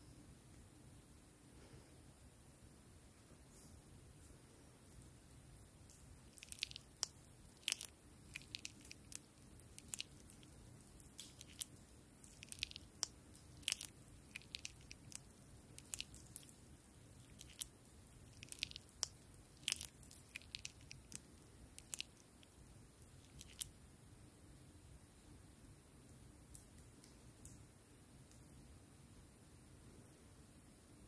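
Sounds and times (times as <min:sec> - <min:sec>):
slime crackling and popping: 0:05.8 - 0:23.7.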